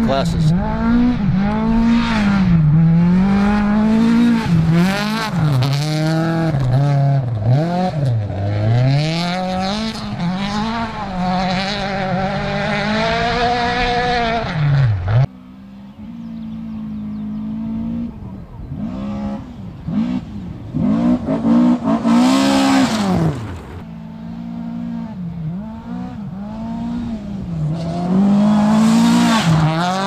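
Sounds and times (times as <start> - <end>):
car approaching: 0.0 - 30.0
rally car engines at full throttle: 0.0 - 30.0.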